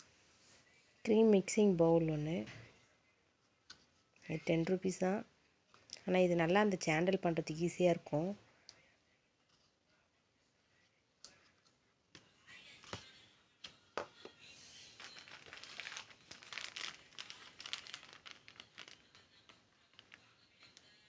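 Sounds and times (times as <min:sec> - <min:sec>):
plastic packets crinkling: 0:14.7 - 0:20.8.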